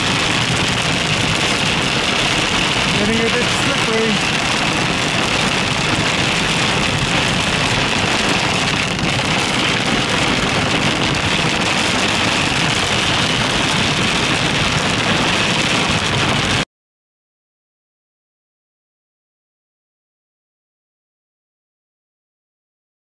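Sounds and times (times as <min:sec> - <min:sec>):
rain and hail on car roof: 0:00.0 - 0:16.6
tyres hissing on wet road: 0:00.0 - 0:16.6.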